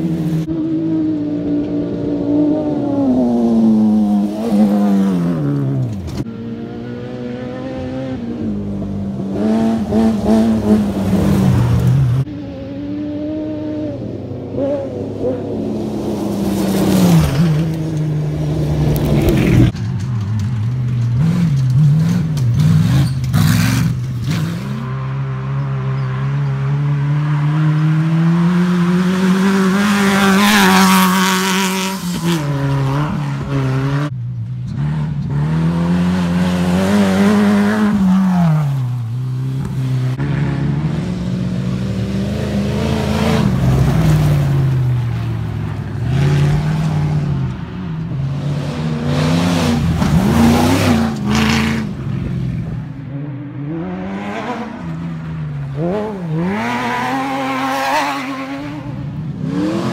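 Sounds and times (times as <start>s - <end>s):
racing engines revving hard: 21.2s - 44.9s, 45.8s - 59.9s.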